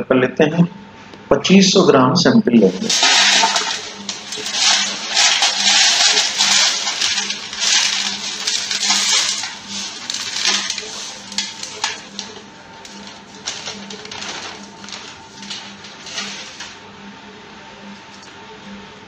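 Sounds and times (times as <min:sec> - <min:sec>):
gravelly chunks rattling into a tray: 0:02.7 - 0:16.6
paper rustling: 0:02.7 - 0:16.8.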